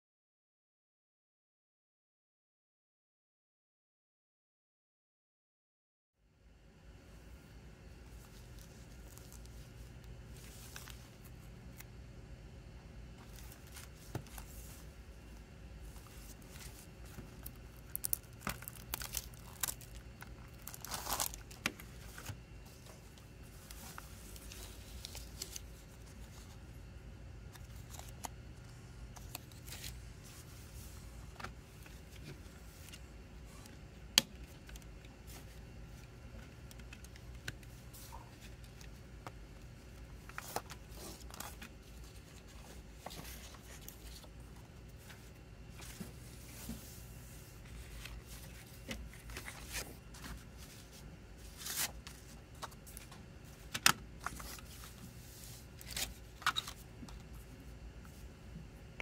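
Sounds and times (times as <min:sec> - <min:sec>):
cellophane wrap crinkling: 0:15.9 - 0:25.8.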